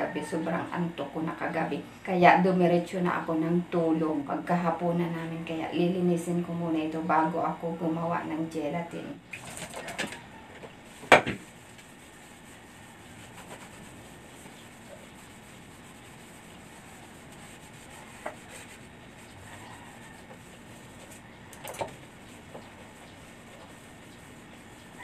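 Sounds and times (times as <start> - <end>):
faint rubbing with light clicks: 9.5 - 25.0.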